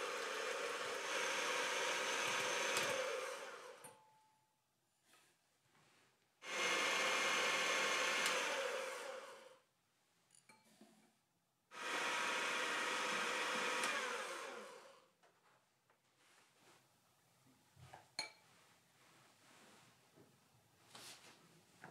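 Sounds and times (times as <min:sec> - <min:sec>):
electric hand mixer whisking: 0:00.0 - 0:03.9, 0:06.4 - 0:09.6, 0:11.7 - 0:15.1.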